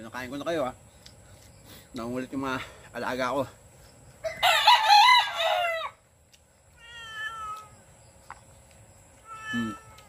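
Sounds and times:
cat meowing: 0:06.8 - 0:07.7, 0:09.2 - 0:10.0.

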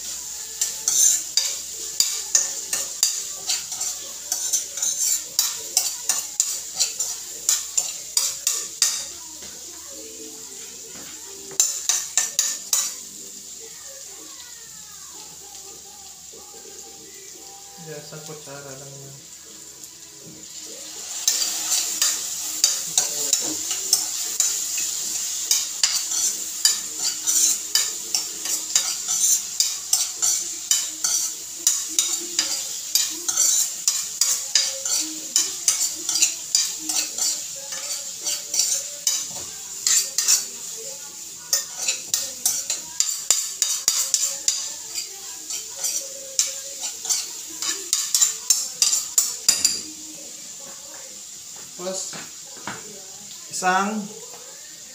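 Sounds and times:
spoon scraping against pan: 0:00.0 - 0:13.6, 0:20.4 - 0:50.5
food sizzling in frying pan: 0:00.0 - 0:54.9.

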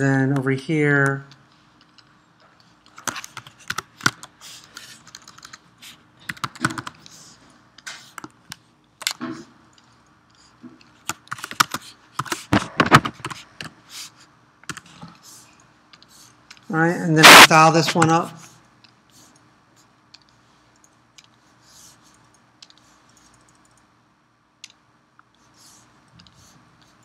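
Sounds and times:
typing on keyboard: 0:01.8 - 0:07.2, 0:10.9 - 0:12.4.

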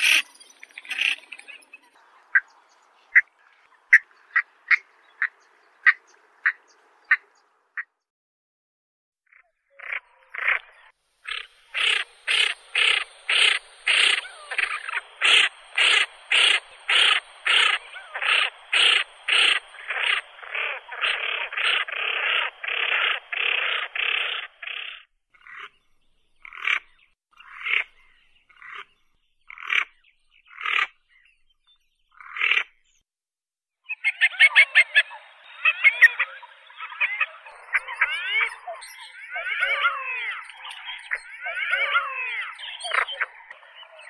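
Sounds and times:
duck rasping calls: 0:11.3 - 0:25.0.

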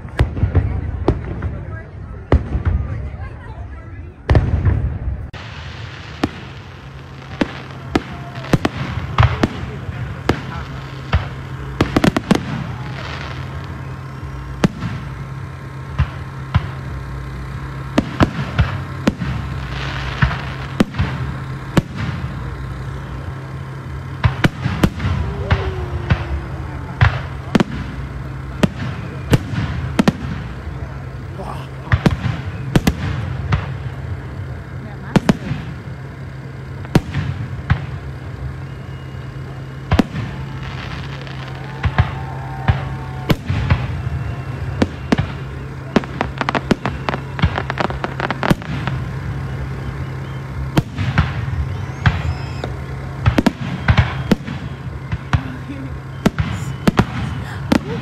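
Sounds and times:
fireworks crackling: 0:00.0 - 0:58.0
fireworks shells bursting: 0:04.3 - 0:58.0.

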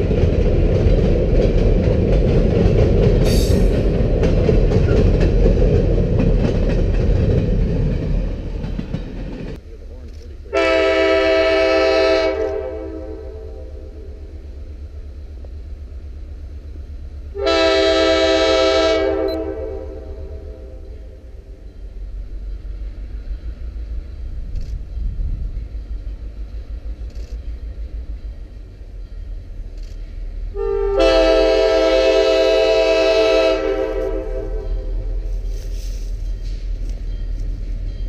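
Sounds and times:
locomotive air horn: 0:10.5 - 0:14.1, 0:17.3 - 0:21.2, 0:30.5 - 0:36.1.

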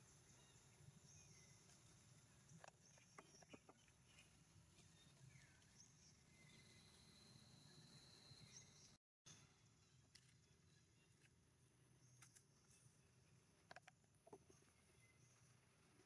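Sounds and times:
faint high chirps: 0:02.6 - 0:10.0.

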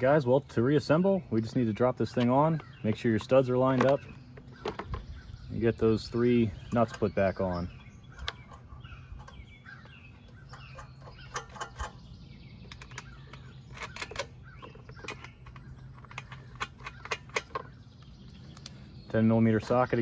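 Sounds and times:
metal nuts and plastic cover clicking: 0:02.0 - 0:05.1, 0:06.0 - 0:18.8.

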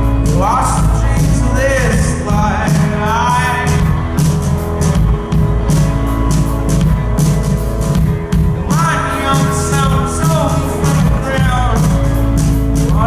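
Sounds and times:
person singing: 0:00.0 - 0:05.1, 0:08.5 - 0:13.0
bass guitar: 0:00.0 - 0:13.0
electric guitars: 0:00.0 - 0:13.0
steady drum beat: 0:00.0 - 0:13.0.

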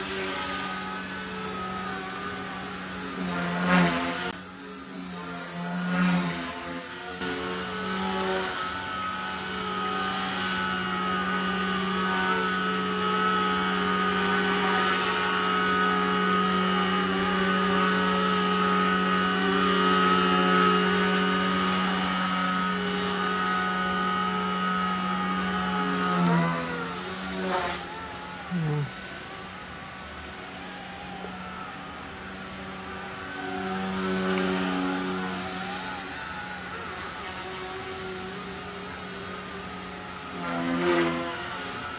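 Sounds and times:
rc helicopter motor whine: 0:00.0 - 0:41.9.

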